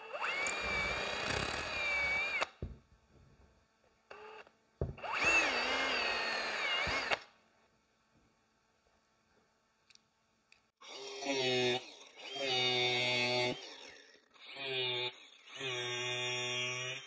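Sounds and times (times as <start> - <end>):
electric drill whining: 0.0 - 2.8, 4.1 - 7.3.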